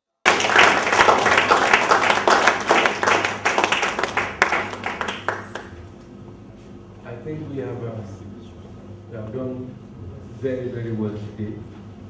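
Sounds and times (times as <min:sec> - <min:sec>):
audience applause: 0:00.3 - 0:05.8.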